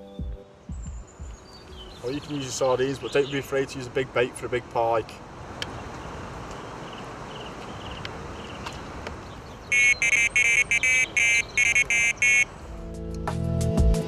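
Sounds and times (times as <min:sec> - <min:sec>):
music: 0:00.0 - 0:02.6, 0:12.7 - 0:14.0
bite alarm beeping: 0:09.7 - 0:12.6.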